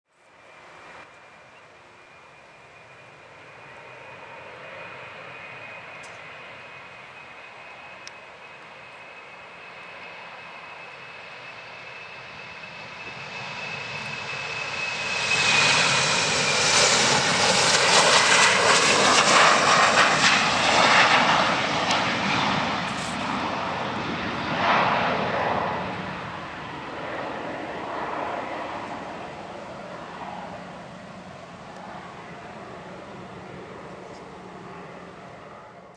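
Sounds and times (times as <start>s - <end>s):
jet engine fan whine: 0.2s - 35.9s
jet engine rushing noise: 8.7s - 35.9s.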